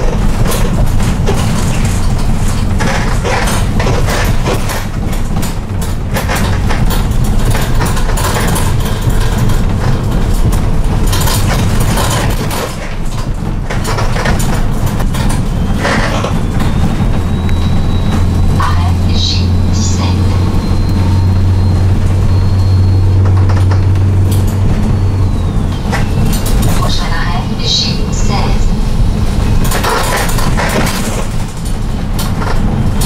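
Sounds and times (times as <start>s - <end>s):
body and fittings creaking and rattling: 0.0s - 33.0s
engine and road rumble: 0.0s - 33.0s.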